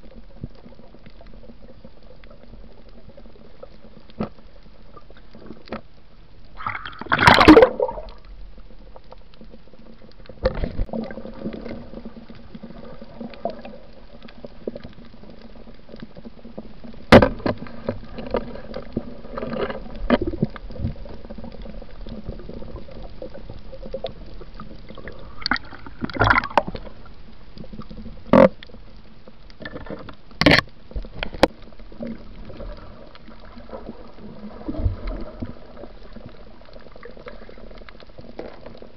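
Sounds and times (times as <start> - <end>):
muffled underwater rush: 0.0 - 38.9
bubbling gurgles: 6.5 - 8.3, 10.4 - 15.6, 17.6 - 28.6, 31.1 - 38.9.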